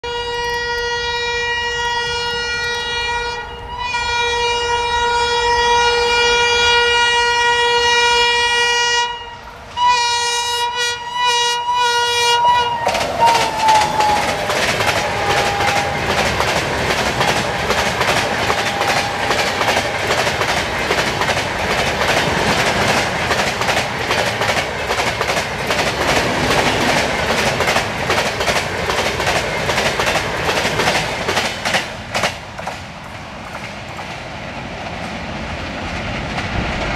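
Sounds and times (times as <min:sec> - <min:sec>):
locomotive horn blasts: 0:00.0 - 0:16.2, 0:18.3 - 0:20.3
train coaches rushing past: 0:10.8 - 0:36.9
wheels clacking over rail joints: 0:12.4 - 0:34.2.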